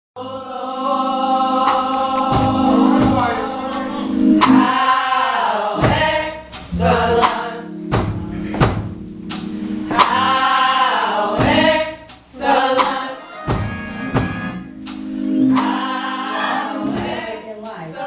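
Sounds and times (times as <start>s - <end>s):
choir singing over a band: 0.2s - 8.5s, 9.9s - 14.7s, 15.3s - 18.0s
drum hits: 1.7s - 3.4s, 5.8s - 17.3s.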